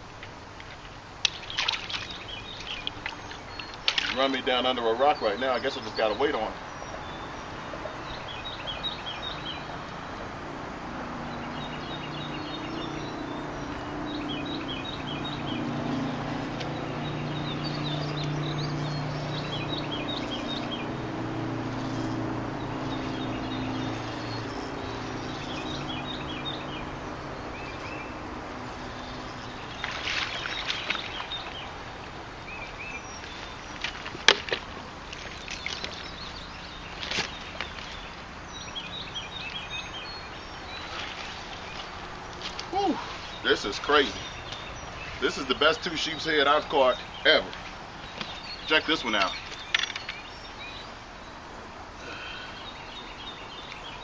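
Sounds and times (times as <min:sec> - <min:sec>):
songbird chirping: 0:00.0 - 0:54.0
low steady drone: 0:04.7 - 0:34.0.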